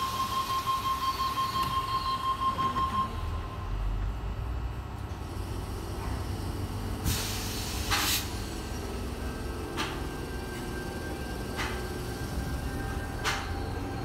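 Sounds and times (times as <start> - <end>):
train rumbling: 0.0 - 14.0
air hissing: 7.0 - 8.8.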